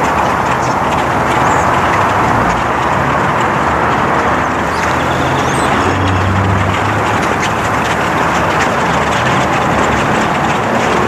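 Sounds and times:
flock of birds calling: 0.0s - 3.2s, 4.5s - 9.9s
engine hum: 0.0s - 11.0s
traffic hum: 0.0s - 11.0s
high bird chirps: 4.7s - 6.0s.

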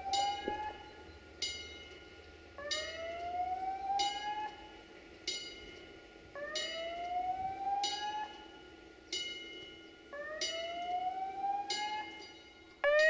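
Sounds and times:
electronic bell-like warning strikes: 0.0s - 2.1s, 2.7s - 3.3s.

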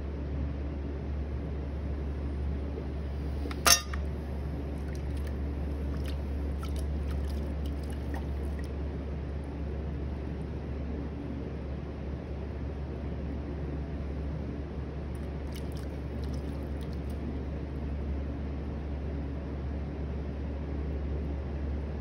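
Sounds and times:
pottery wheel motor humming: 1.7s - 11.1s
water splashes and drips: 3.2s - 8.8s, 15.2s - 17.3s.

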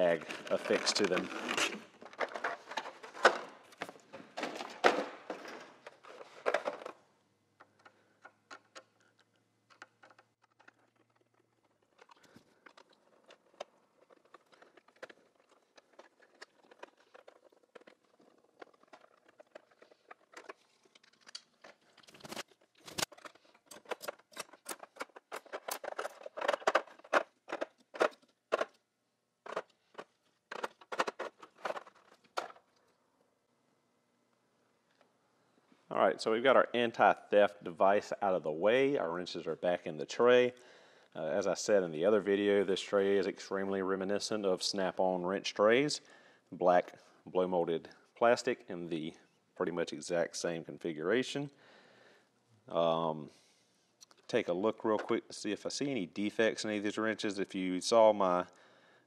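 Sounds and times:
plastic tray clacks: 9.7s - 28.8s, 29.4s - 32.6s.

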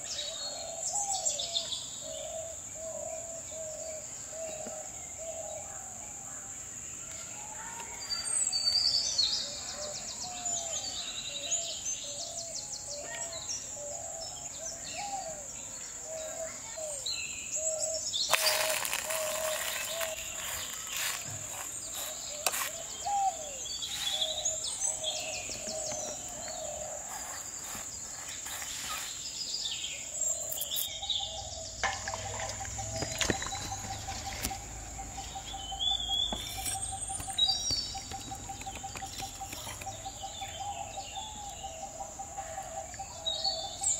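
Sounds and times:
birds chirping: 0.0s - 43.9s
high-pitched insect drone: 18.3s - 22.6s
low whistled bird calls: 28.4s - 43.9s.

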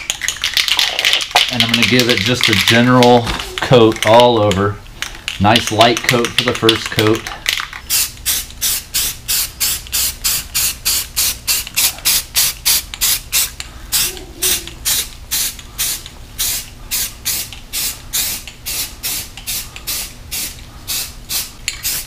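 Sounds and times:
spray paint can hissing: 7.9s - 22.0s.

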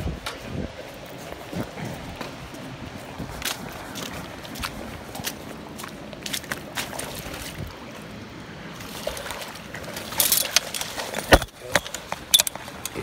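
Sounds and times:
footsteps: 0.0s - 7.8s
river water rushing: 0.0s - 13.0s.

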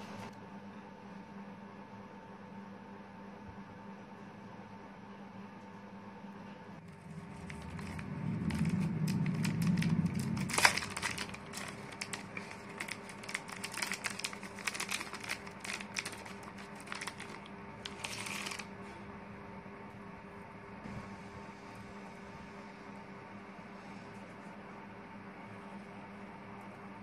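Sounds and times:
plastic packet crinkling: 6.9s - 18.7s
short crackles: 6.9s - 18.7s.

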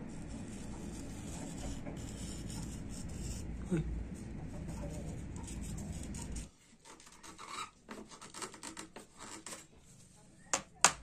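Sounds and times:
knife blade scraping wood: 5.4s - 9.7s.

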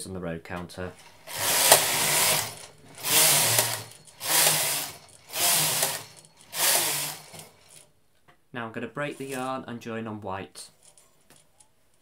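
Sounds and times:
knitting machine carriage whirring: 1.0s - 7.9s.

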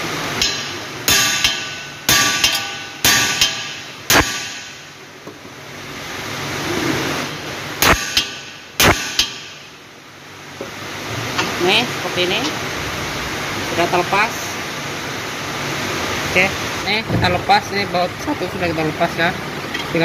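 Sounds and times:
hammer clanging on steel: 0.4s - 4.8s, 7.8s - 9.6s.

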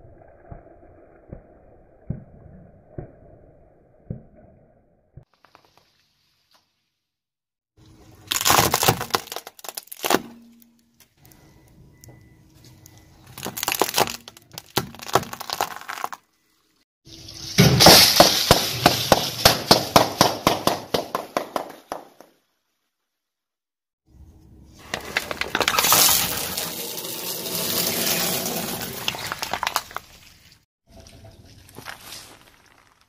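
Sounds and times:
chip packets popping under tyre: 8.3s - 10.3s, 13.2s - 16.2s
plastic straws cracking under tyre: 13.2s - 16.2s.

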